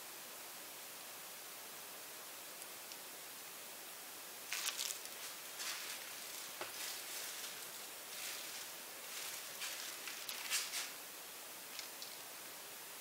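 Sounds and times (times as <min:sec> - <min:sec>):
steady background hiss: 0:00.0 - 0:13.0
rustling and handling noises: 0:04.5 - 0:11.0.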